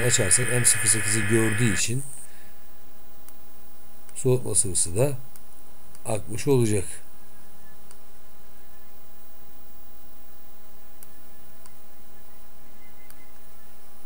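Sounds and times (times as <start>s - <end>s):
steady electrical hum: 0.0s - 3.9s.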